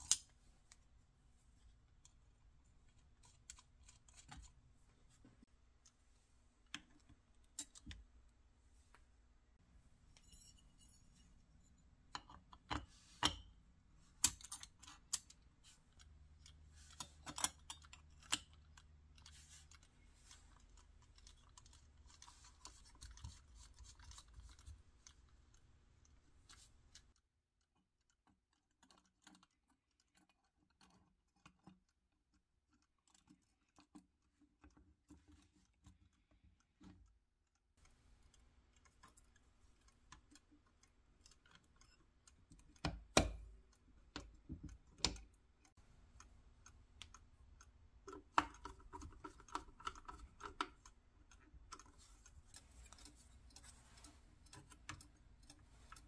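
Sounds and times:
small metal parts clicking: 0.0 - 0.4.

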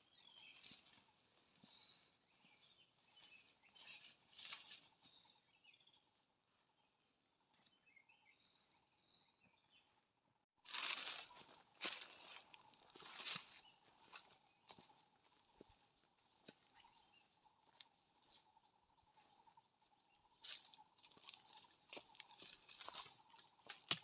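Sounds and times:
footsteps crunching through leaves: 10.7 - 14.9, 20.4 - 24.0.

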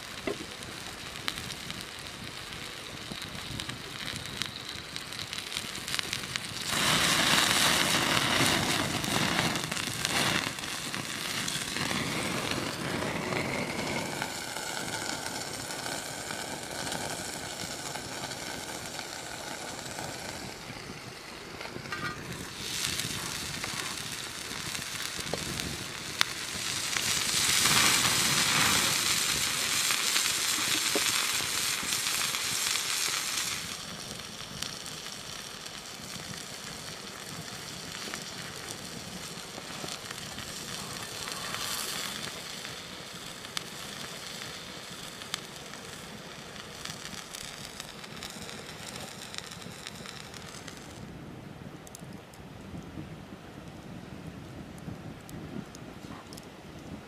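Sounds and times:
burger patty sizzling: 0.0 - 51.0
wood fire crackling: 0.0 - 57.0
sharp crack: 21.6 - 51.0.

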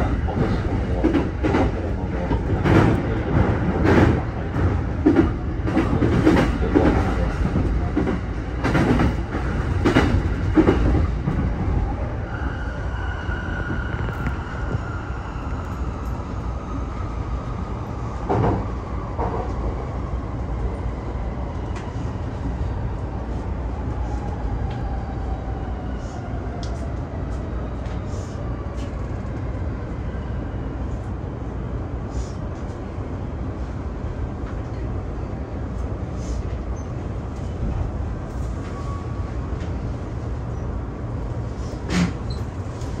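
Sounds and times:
train running gear rumble: 0.0 - 12.2, 13.6 - 24.9, 30.9 - 43.0
rail clicks: 0.3 - 11.6.

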